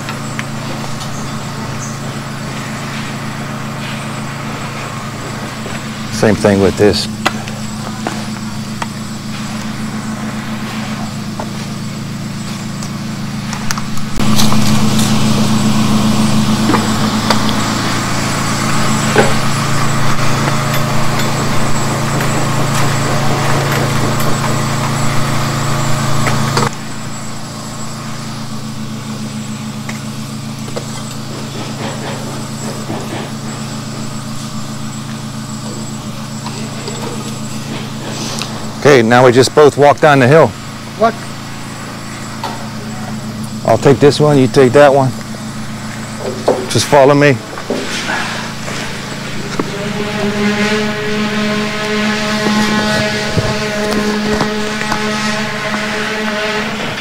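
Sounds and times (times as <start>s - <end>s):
engine humming: 0.0s - 57.0s.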